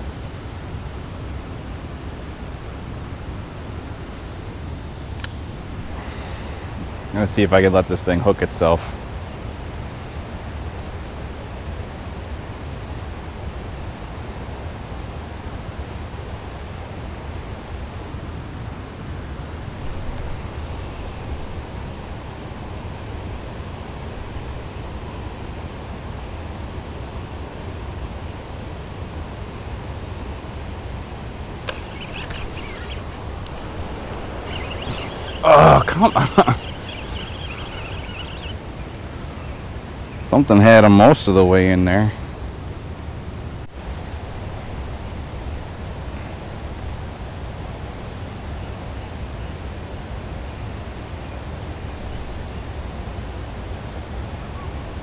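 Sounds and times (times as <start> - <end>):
hiss: 5.9 - 6.9.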